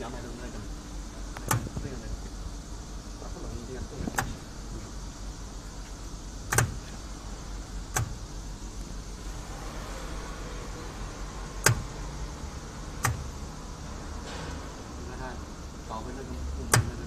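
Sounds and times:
low machine hum: 0:00.0 - 0:17.0
sharp clicks: 0:06.5 - 0:06.8, 0:07.9 - 0:08.2, 0:13.0 - 0:13.3.

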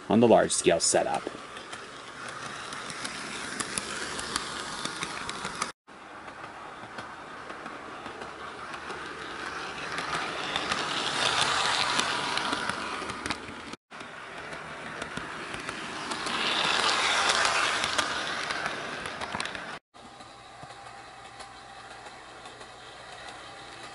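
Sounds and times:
model train motor whirring: 0:00.7 - 0:23.9
light clicks of wheels: 0:01.3 - 0:19.8.

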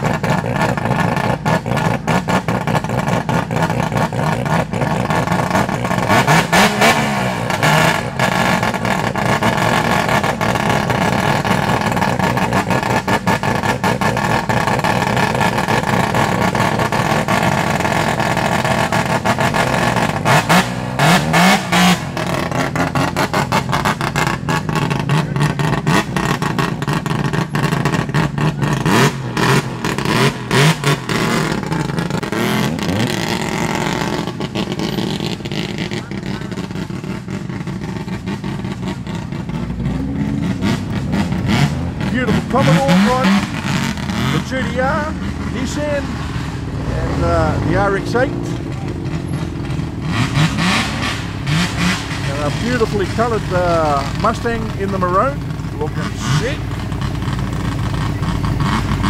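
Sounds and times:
car engines idling and revving: 0:00.0 - 0:59.0.

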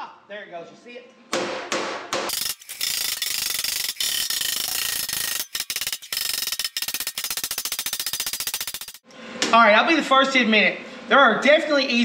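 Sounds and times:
metallic ratcheting clicks: 0:02.3 - 0:09.0.

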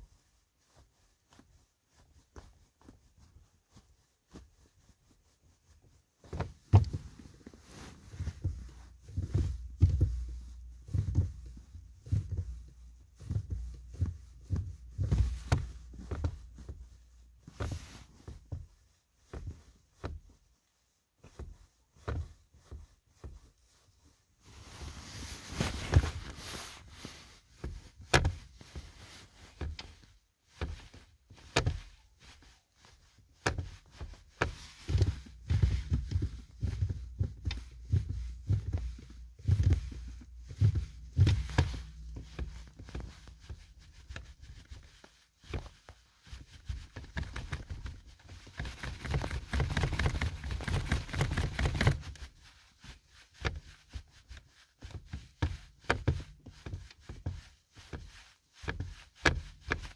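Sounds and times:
boot thumping on car pedal: 0:06.2 - 0:07.2, 0:08.2 - 0:18.7, 0:34.4 - 0:44.8.

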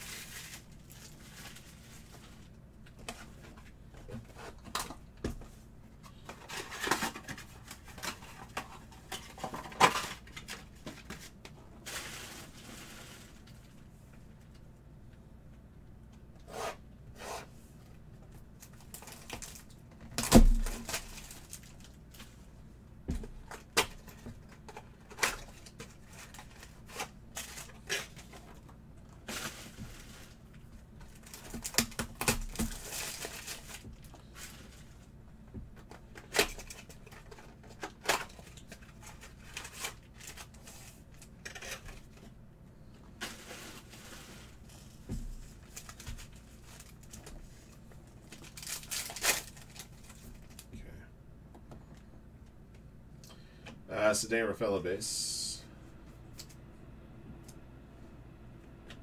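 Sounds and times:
card packs rustling: 0:00.0 - 0:02.5, 0:06.1 - 0:13.8, 0:18.6 - 0:22.5, 0:23.2 - 0:35.0, 0:35.9 - 0:42.3, 0:43.1 - 0:50.7.

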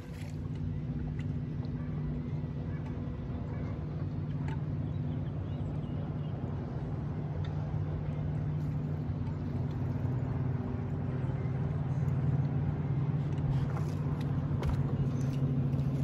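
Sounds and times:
boat motor humming: 0:00.0 - 0:16.0.

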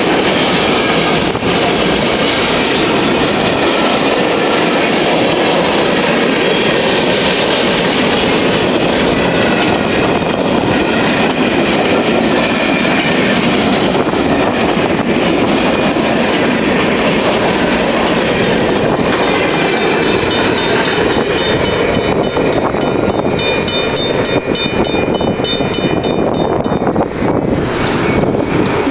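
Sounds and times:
train wheels clattering over rail joints: 0:00.0 - 0:28.9
crossing bell ringing: 0:18.4 - 0:27.1.

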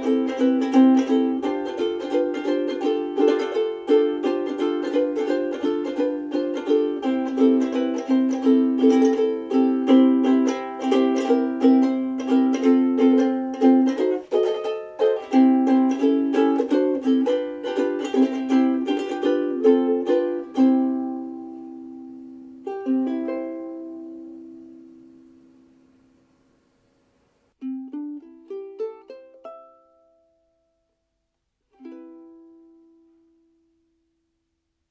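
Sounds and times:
ukulele playing: 0:00.0 - 0:26.1, 0:27.5 - 0:31.0, 0:31.6 - 0:34.3.

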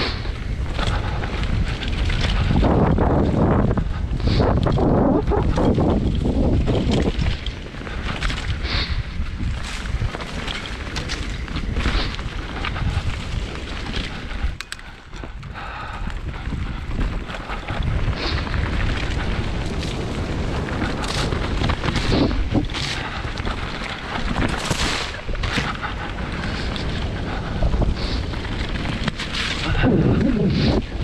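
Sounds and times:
bike rattling over bumps: 0:00.0 - 0:31.0
tyre noise on dirt: 0:00.0 - 0:31.0
wind buffeting microphone: 0:00.0 - 0:31.0.

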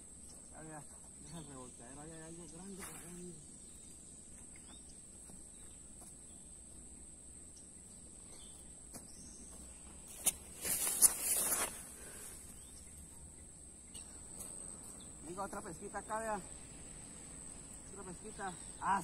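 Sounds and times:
insects chorus: 0:00.0 - 0:19.0
footsteps on dry leaf litter: 0:08.4 - 0:12.4.

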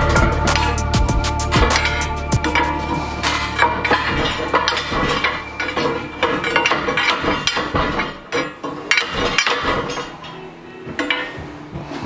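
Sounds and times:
pry bar clanking on radiator: 0:01.6 - 0:10.4.

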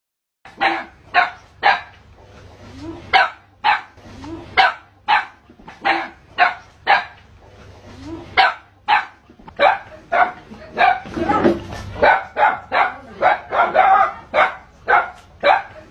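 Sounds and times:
dog barking: 0:00.5 - 0:01.9, 0:03.1 - 0:03.9, 0:04.6 - 0:07.2, 0:08.4 - 0:15.9.

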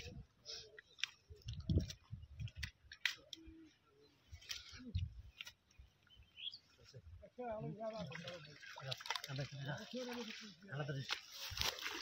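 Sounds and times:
bamboo sticks clicking and rustling: 0:00.8 - 0:03.5, 0:11.0 - 0:12.0.

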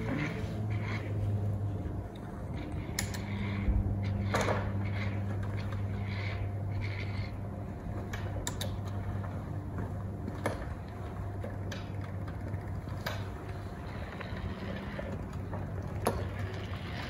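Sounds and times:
electric motor hum: 0:00.0 - 0:17.0.

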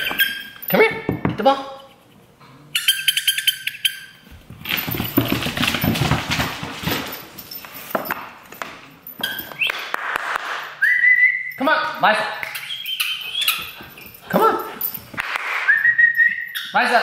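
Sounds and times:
high squeaks: 0:00.0 - 0:00.8, 0:01.7 - 0:04.3, 0:12.5 - 0:15.0
puppy claws on hardwood floor: 0:04.3 - 0:10.6.

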